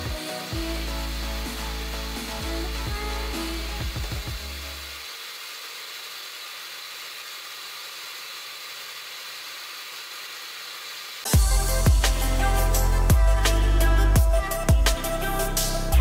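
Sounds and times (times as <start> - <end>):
electronic music with heavy beat: 0.0 - 4.8, 11.3 - 16.0
belt grinder grinding steel: 0.0 - 13.1.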